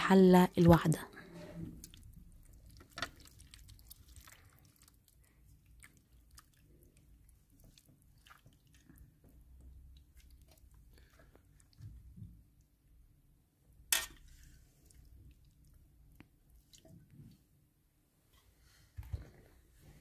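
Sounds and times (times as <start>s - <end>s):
stew squelching onto plate: 1.8s - 9.1s.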